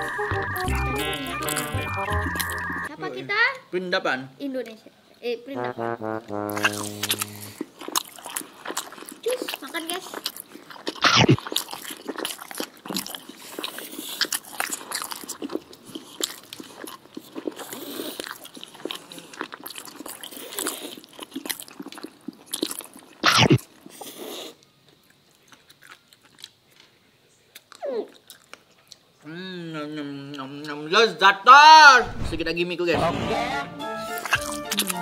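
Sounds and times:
noodles slurped and chewed: 0:06.5 - 0:29.1, 0:34.2 - 0:35.0.

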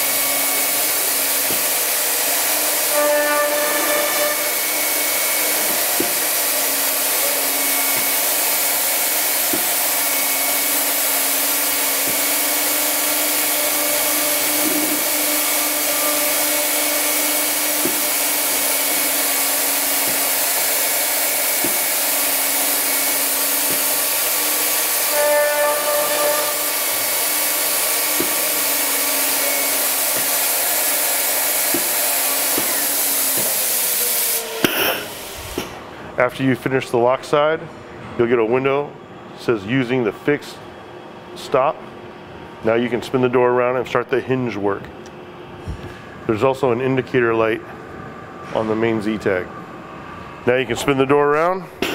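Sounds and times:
router spindles running: 0:00.0 - 0:34.6.

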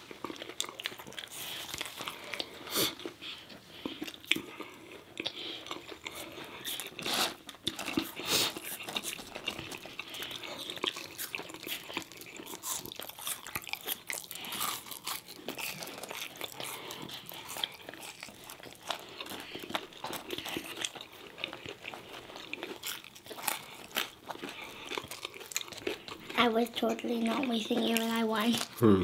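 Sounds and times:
people chewing and crunching food: 0:00.0 - 0:29.0.

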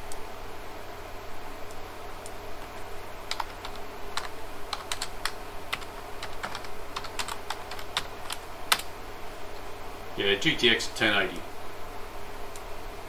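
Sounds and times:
steady low hum: 0:00.0 - 0:13.0
typing on computer keyboard: 0:02.7 - 0:08.9.

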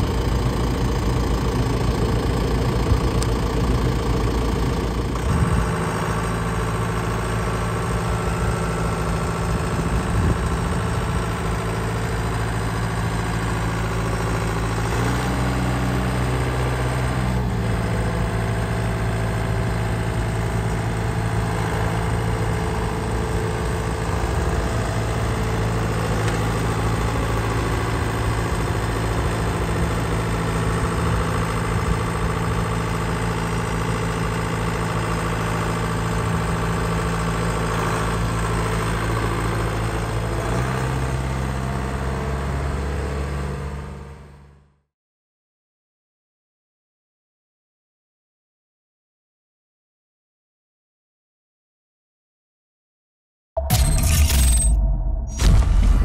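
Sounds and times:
tractor diesel engine idling: 0:00.0 - 0:44.5.

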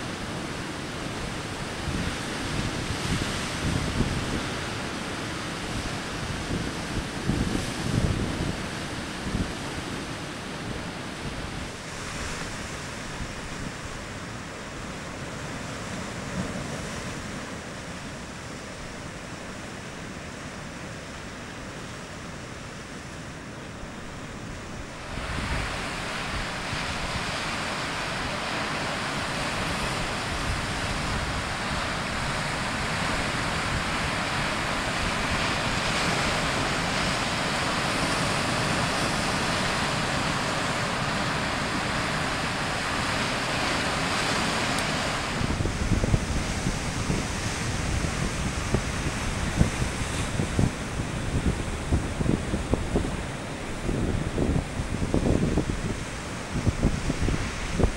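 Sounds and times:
surf breaking over rocks: 0:24.0 - 0:57.9.

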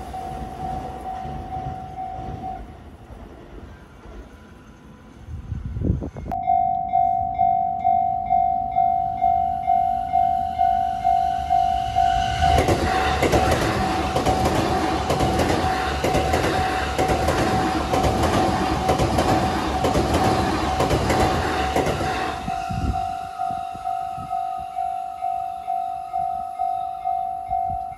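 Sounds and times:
electronic crossing bell ringing: 0:00.0 - 0:02.7, 0:06.3 - 0:12.5, 0:22.5 - 0:27.9
train passing with rail clatter: 0:00.0 - 0:27.9.

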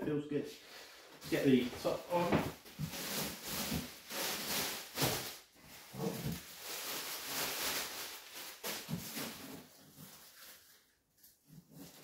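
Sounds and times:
packaging rustling: 0:02.6 - 0:12.0.

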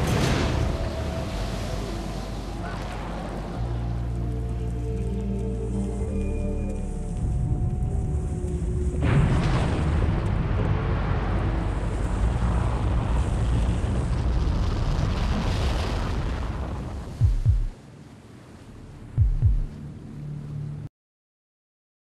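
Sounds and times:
rumbling rush of noise: 0:00.0 - 0:20.9
deep boom: 0:09.0 - 0:15.5, 0:17.2 - 0:17.8, 0:19.2 - 0:19.7.

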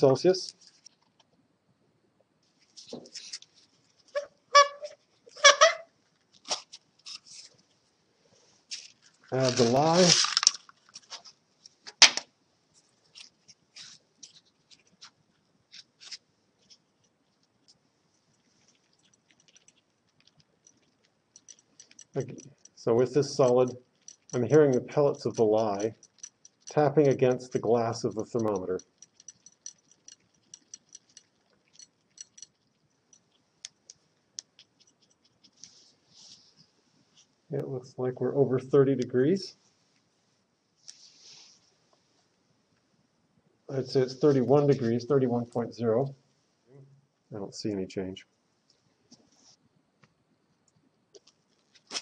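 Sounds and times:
pellets clicking against glass: 0:20.7 - 0:32.6.

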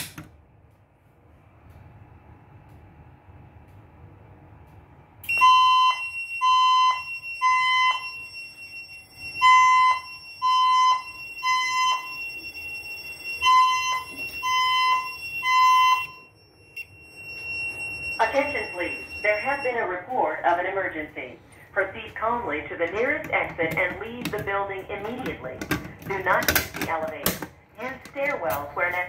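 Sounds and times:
fire alarm beeps: 0:05.2 - 0:20.6
steady high tone: 0:05.2 - 0:20.9
spoken message over speaker: 0:18.2 - 0:29.0.

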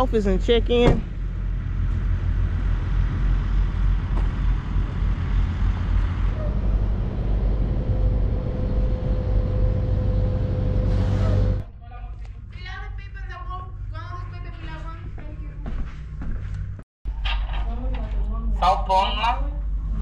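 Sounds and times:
diesel trucks rumbling: 0:00.0 - 0:11.7.

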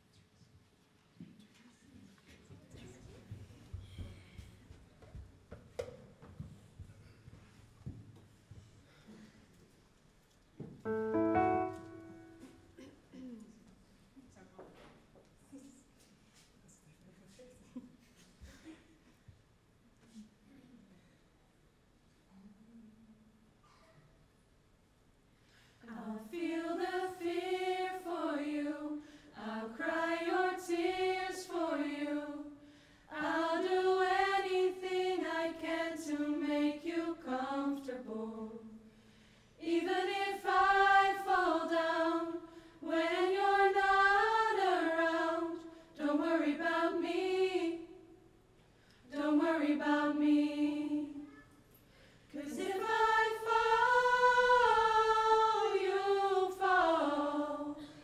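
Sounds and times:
vocal group singing: 0:25.8 - 0:38.9, 0:39.6 - 0:48.2, 0:49.0 - 0:51.4, 0:52.3 - 0:58.0.

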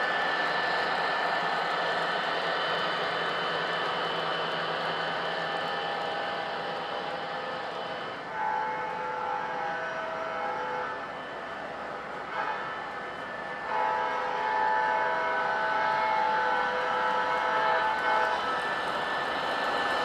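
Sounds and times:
locomotive horn blasts: 0:08.2 - 0:11.2, 0:12.3 - 0:12.8, 0:13.6 - 0:18.6
wheels rolling on track: 0:17.8 - 0:20.0.

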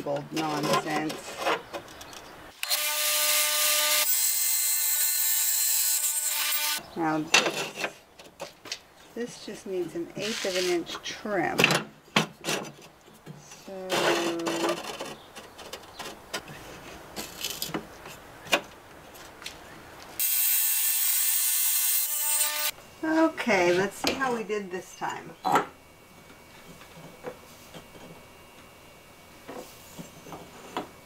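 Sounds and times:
electric tile saw cutting: 0:02.6 - 0:06.8, 0:20.2 - 0:22.7.

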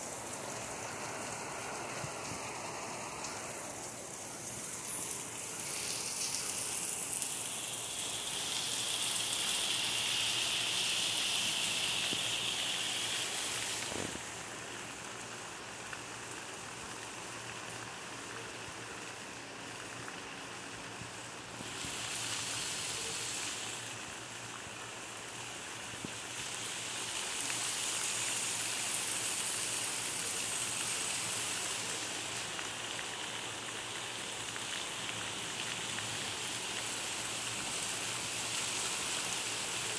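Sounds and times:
heavy rain: 0:00.0 - 0:39.9.

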